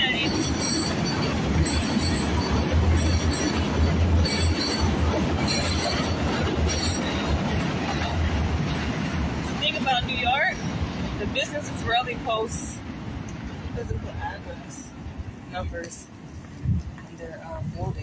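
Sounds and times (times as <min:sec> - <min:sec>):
high wheel squeals: 0:00.0 - 0:07.4
subway train rumble: 0:00.0 - 0:18.0.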